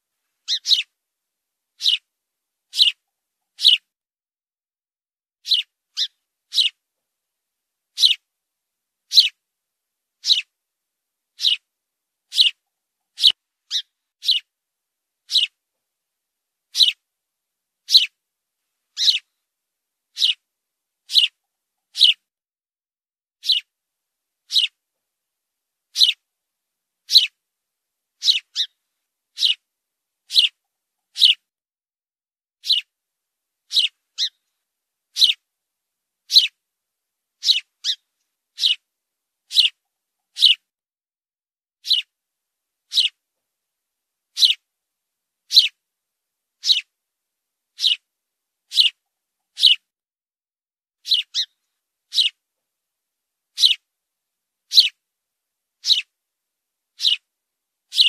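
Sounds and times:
sparrow chirping: 0.4 - 0.9, 1.8 - 2.1, 2.7 - 3.9, 5.4 - 6.8, 7.9 - 8.2, 9.1 - 9.4, 10.2 - 10.5, 11.4 - 11.7, 12.3 - 14.5, 15.2 - 15.6, 16.7 - 17.0, 17.8 - 18.2, 18.9 - 19.3, 20.1 - 20.4, 21.0 - 22.2, 23.4 - 23.7, 24.5 - 24.8, 25.9 - 26.2, 27.0 - 27.4, 28.2 - 29.7, 30.3 - 31.4, 32.6 - 32.9, 33.7 - 34.5, 35.1 - 35.4, 36.2 - 36.6, 37.4 - 38.8, 39.5 - 40.7, 41.8 - 42.1, 42.9 - 43.2, 44.3 - 44.6, 45.5 - 45.8, 46.6 - 46.9, 47.8 - 48.1, 48.7 - 49.8, 51.0 - 52.4, 53.5 - 53.9, 54.7 - 55.0, 55.8 - 56.1, 57.0 - 57.3.

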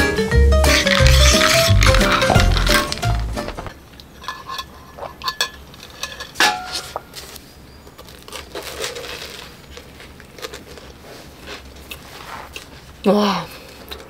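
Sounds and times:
toast crunching: 0.6 - 12.9
paper crinkling: 0.7 - 3.8, 6.8 - 12.8
chewing: 7.9 - 12.9.

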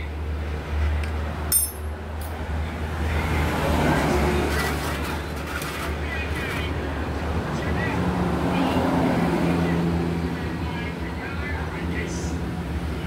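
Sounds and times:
vehicle rumble: 0.0 - 13.0
metal parts clinking: 1.5 - 2.3.

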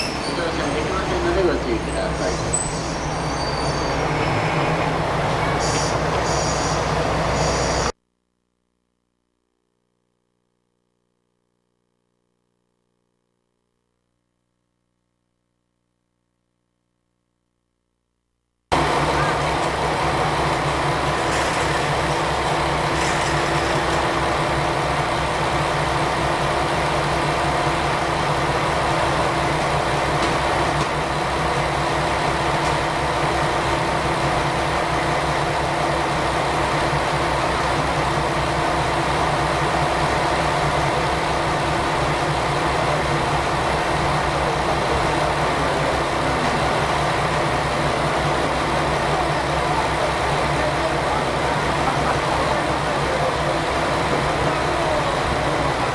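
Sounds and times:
diesel engine idling: 0.3 - 7.4, 18.7 - 55.9.

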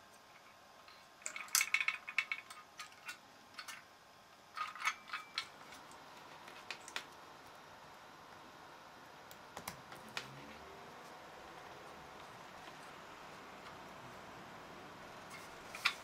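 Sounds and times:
fan low hum: 0.0 - 16.0.

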